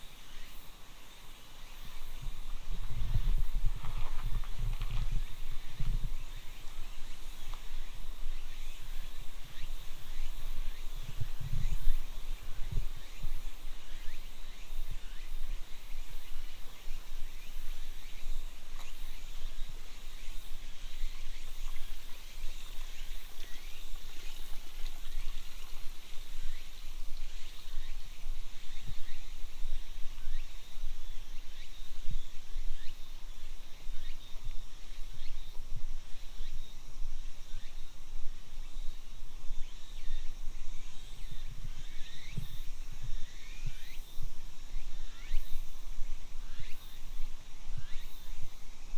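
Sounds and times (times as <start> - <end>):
insect hum: 0.0 - 48.9.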